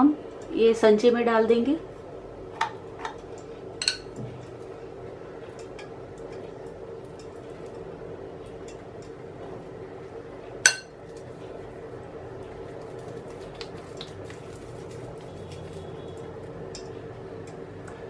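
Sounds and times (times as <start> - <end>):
spoon clinking against glass: 10.7 - 10.9.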